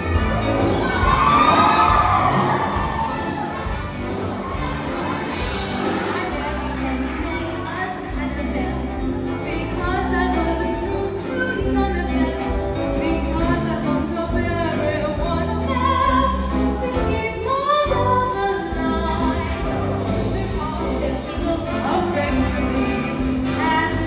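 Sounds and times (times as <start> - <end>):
live band playing: 0.0 - 24.0.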